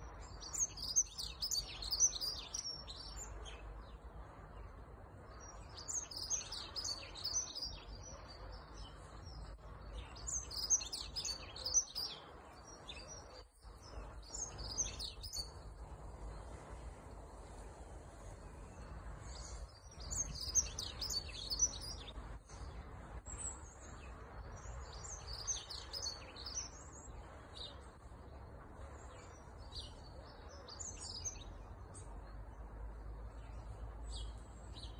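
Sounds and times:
bird singing high warbles: 0.0s - 34.9s
low background rumble: 12.1s - 34.9s.

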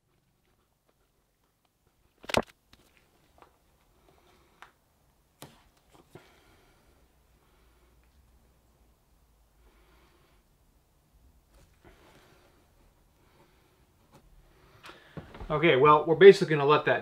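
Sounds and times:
quiet clicks and taps: 0.0s - 4.8s.

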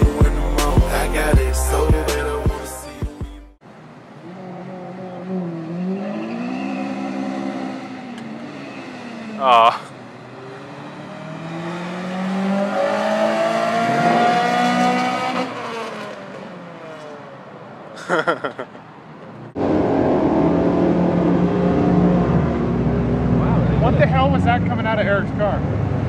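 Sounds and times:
drag racing cars accelerating: 4.0s - 17.5s, 19.3s - 26.0s.

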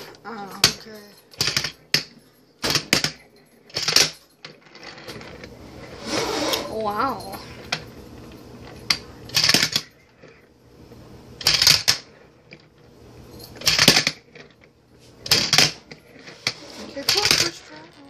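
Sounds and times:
handboard wheels clattering on countertop: 15.3s - 18.0s.

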